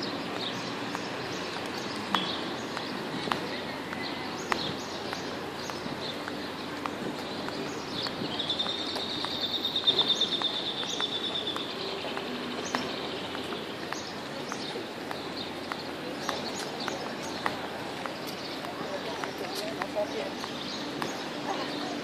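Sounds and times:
faint footsteps: 0:00.0 - 0:22.0
steady background noise: 0:00.0 - 0:22.0
songbird trilling: 0:07.6 - 0:14.6.

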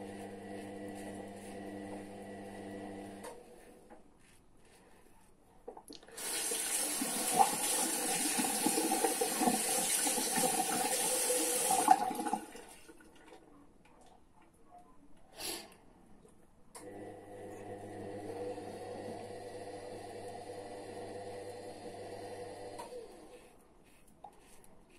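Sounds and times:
water running from sink tap: 0:06.0 - 0:12.9.

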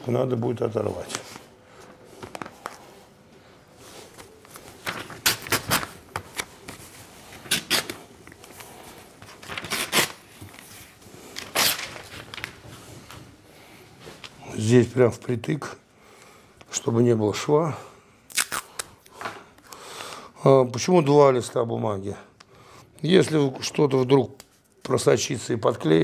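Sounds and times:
newspaper rustling and crinkling: 0:03.8 - 0:13.2.

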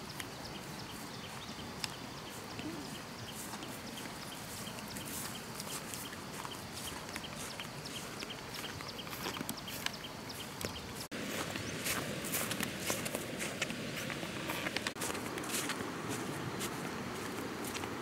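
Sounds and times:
steady hiss: 0:00.0 - 0:08.9.

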